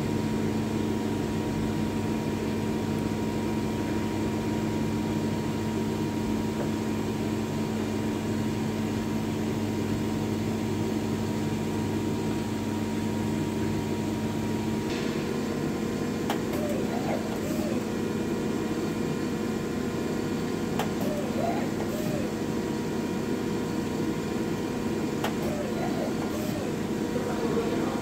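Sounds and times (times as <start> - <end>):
lathe machine hum: 9.3 - 28.0.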